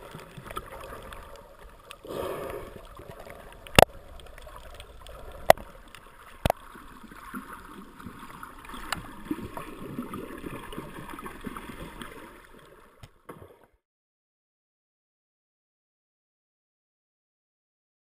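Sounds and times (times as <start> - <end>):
scattered crackles: 0.0 - 6.8
water gurgling: 0.0 - 13.7
muffled underwater water swishing: 0.0 - 13.8.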